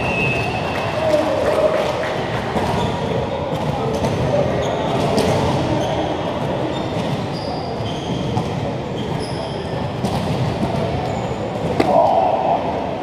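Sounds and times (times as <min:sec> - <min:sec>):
crowd talking in echoing hall: 0:00.0 - 0:13.0
sports shoes squeaking on court: 0:03.9 - 0:10.2.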